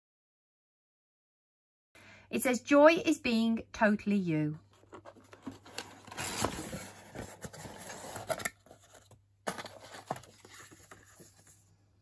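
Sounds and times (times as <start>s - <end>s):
cardboard and paper rustling: 4.7s - 11.7s
cardboard box lid opening: 4.8s - 11.5s.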